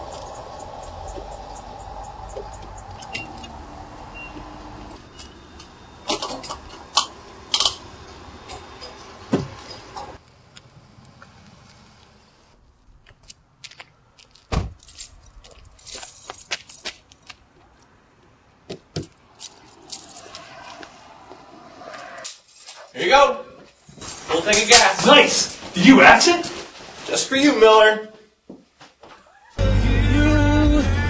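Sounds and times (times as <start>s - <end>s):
keys jangling: 14.8s - 17.3s, 19.0s - 20.6s, 22.2s - 23.0s, 23.7s - 25.2s.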